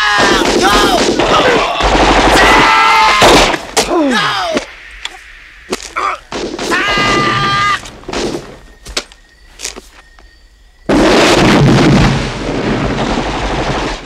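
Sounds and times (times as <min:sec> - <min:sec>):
gunshots: 0:00.0 - 0:03.9, 0:06.3 - 0:08.6
men yelling and screaming: 0:00.0 - 0:04.7, 0:05.9 - 0:07.9.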